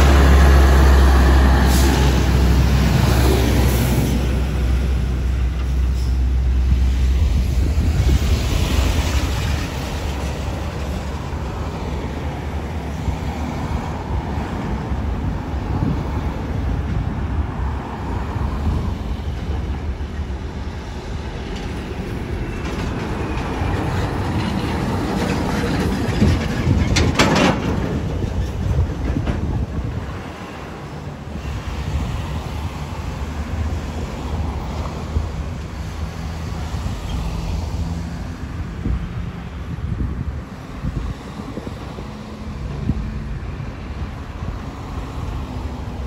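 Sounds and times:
trucks passing: 0:00.0 - 0:46.0
trailer clanking: 0:19.2 - 0:30.7.

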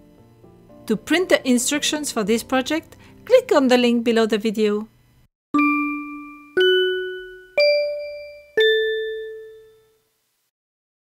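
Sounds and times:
four-note chime jingle: 0:05.6 - 0:10.0.

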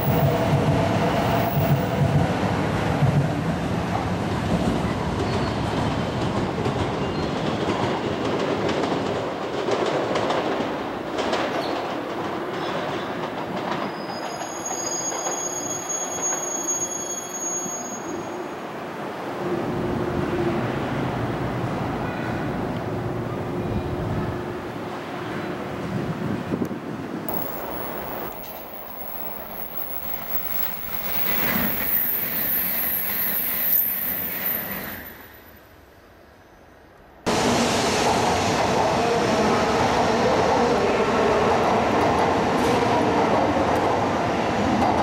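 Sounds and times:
train wheels rumbling on rail: 0:00.0 - 0:18.7, 0:19.4 - 0:35.6, 0:37.3 - 0:45.0
high steady squeal: 0:14.0 - 0:18.5, 0:27.3 - 0:35.8.

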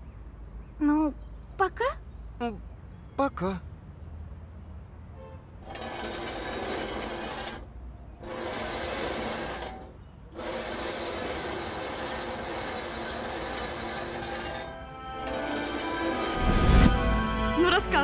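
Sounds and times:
metal tub scraping on pavement: 0:05.6 - 0:18.0.

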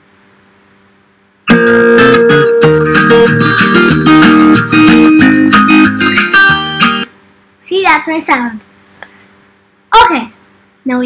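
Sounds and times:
guitar music with bass: 0:01.5 - 0:07.1.

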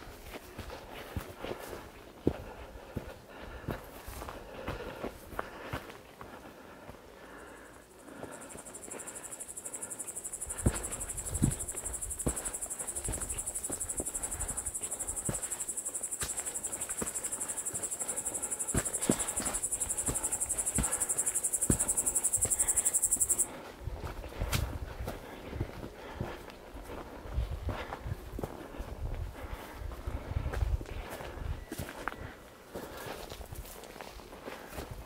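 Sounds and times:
walking footsteps: 0:00.0 - 0:35.0
cricket chirring: 0:07.3 - 0:23.6.

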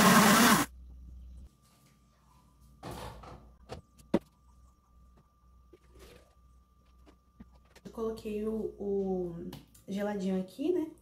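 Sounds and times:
blender motor humming: 0:00.0 - 0:00.7.

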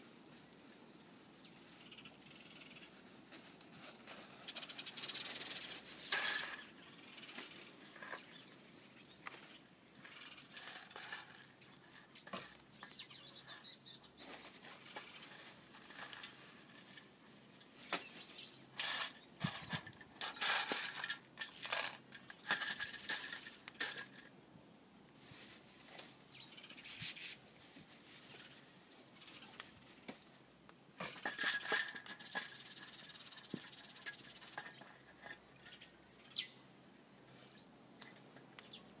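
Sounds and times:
roasting beans rattling: 0:03.4 - 0:24.3, 0:31.0 - 0:36.0.

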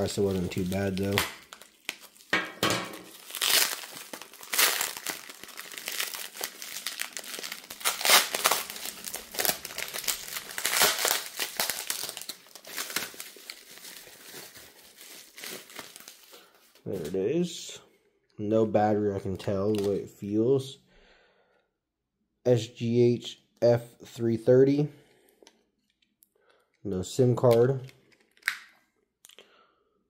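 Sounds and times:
bubble wrap and plastic crinkling: 0:00.0 - 0:17.2.

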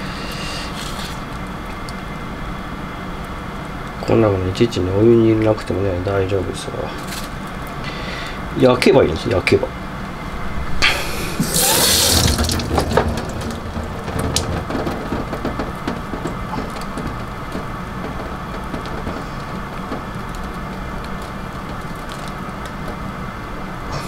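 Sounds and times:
peeling tomato skin by hand: 0:00.0 - 0:02.0
tap water splashing into sink: 0:11.4 - 0:15.6.

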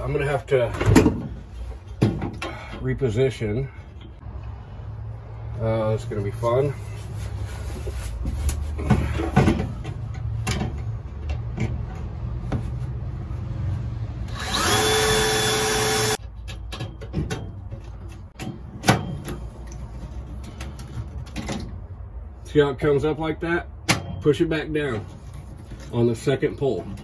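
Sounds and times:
knocks and clicks of handling tools: 0:00.7 - 0:02.8, 0:08.4 - 0:12.8, 0:16.0 - 0:22.1
cordless drill drilling metal: 0:14.3 - 0:16.2.

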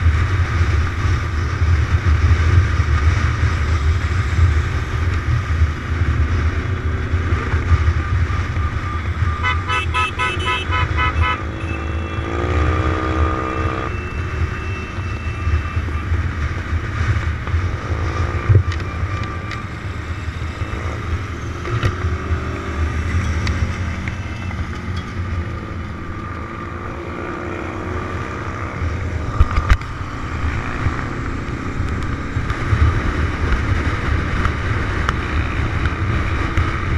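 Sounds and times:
motorcycle engine and wind: 0:00.0 - 0:36.9
horn tooting: 0:09.2 - 0:15.8.

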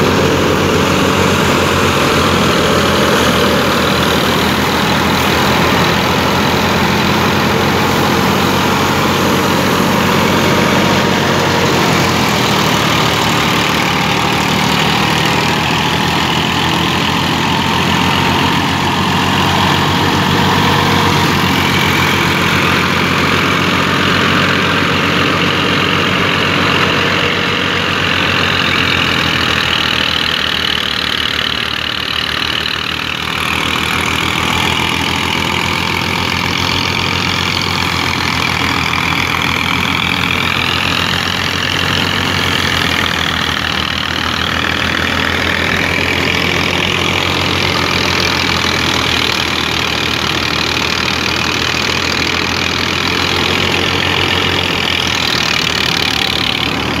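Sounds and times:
diesel tractor engine running: 0:00.0 - 0:57.0
thresher whine: 0:00.0 - 0:57.0.

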